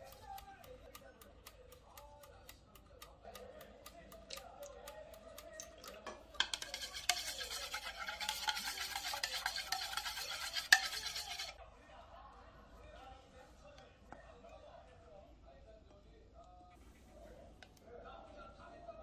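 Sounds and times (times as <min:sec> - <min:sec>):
faint music with ticking: 0:00.0 - 0:06.6
utensil stirring in ceramic bowl: 0:00.0 - 0:11.6.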